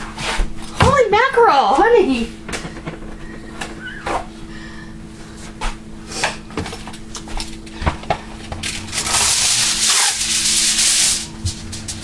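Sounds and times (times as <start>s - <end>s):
foil pulled off roll: 8.6s - 12.0s.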